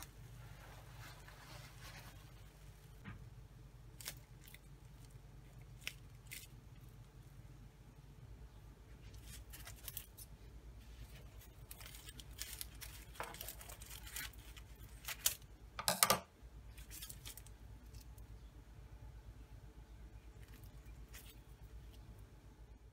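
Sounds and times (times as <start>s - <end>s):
parchment paper rustling: 0.0s - 3.2s, 9.0s - 15.5s
pastry crackling and tearing: 3.8s - 7.6s, 8.9s - 15.8s, 16.6s - 18.4s, 20.1s - 22.3s.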